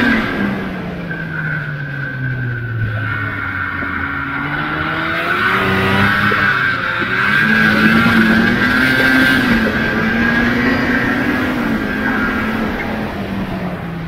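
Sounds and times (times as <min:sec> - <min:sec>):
snowmobile engine running: 0:00.0 - 0:14.0.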